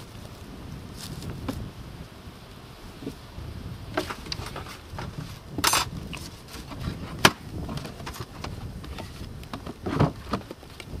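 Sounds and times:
wooden lid scraping hive box: 3.9 - 11.0.

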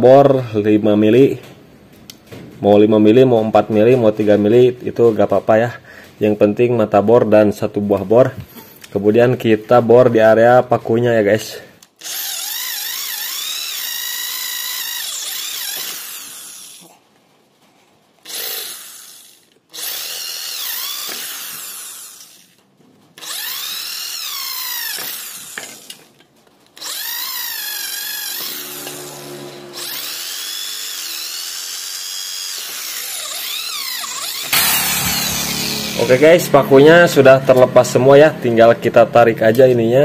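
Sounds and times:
electric drill drilling metal: 12.0 - 16.9, 18.2 - 22.6, 23.2 - 26.1, 26.8 - 37.0.

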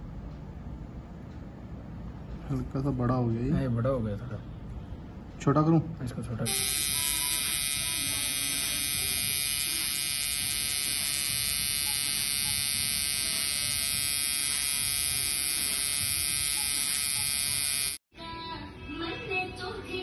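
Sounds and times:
tattoo machine buzzing: 6.4 - 18.0.

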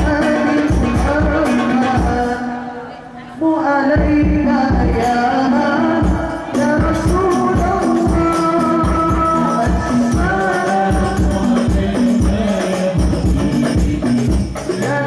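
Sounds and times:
frame drums beating: 0.0 - 2.5, 6.0 - 15.0
young men singing together: 0.0 - 2.8, 3.4 - 15.0.

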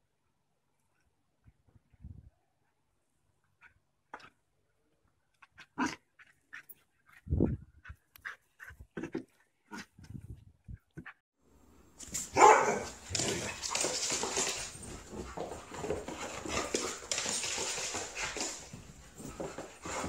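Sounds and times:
dog barking: 12.3 - 13.0.

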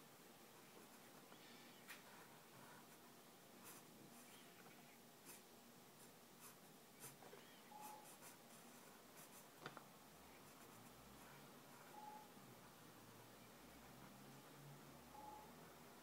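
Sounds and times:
pencil scratching on paper: 3.6 - 4.5, 5.2 - 9.5.

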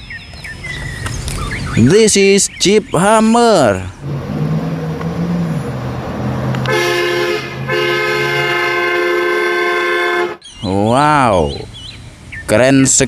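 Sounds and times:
engine humming: 0.3 - 10.5
vehicle horn blasts: 6.6 - 10.4.

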